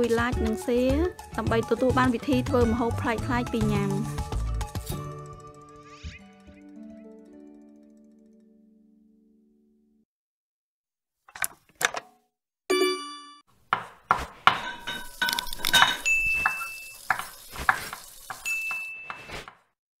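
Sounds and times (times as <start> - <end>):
bell-like ding: 12.7 - 13.4, 18.4 - 19.3
clinks knocks and swishes: 14.4 - 19.5.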